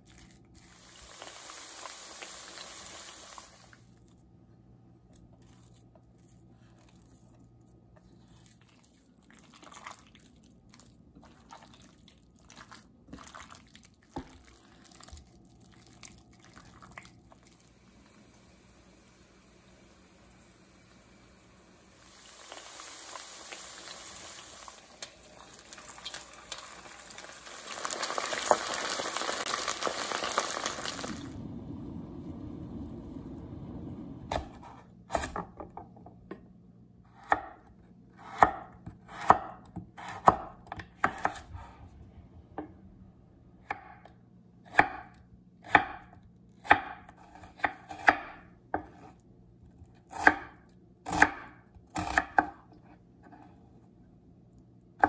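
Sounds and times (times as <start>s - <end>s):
food sizzling in hot oil: 0.5s - 3.8s, 18.0s - 31.4s
knife chopping on wooden board: 38.2s - 41.4s, 44.7s - 45.0s, 50.1s - 52.6s.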